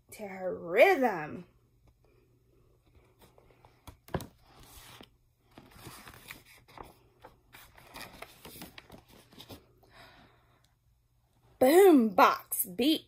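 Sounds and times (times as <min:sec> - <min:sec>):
paper pages rustling: 0:02.9 - 0:09.8.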